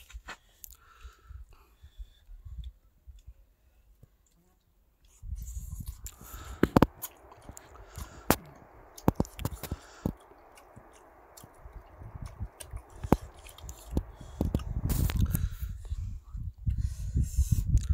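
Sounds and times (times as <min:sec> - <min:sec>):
man chewing: 0:05.0 - 0:16.0
sharp wet clicks: 0:05.9 - 0:15.5.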